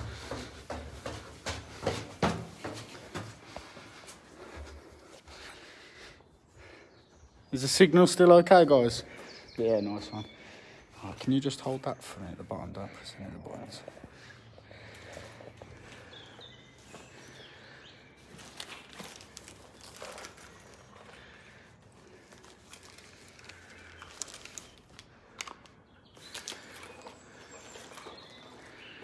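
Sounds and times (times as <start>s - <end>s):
footsteps: 0.0s - 5.6s
rustling handling noise: 18.2s - 25.6s.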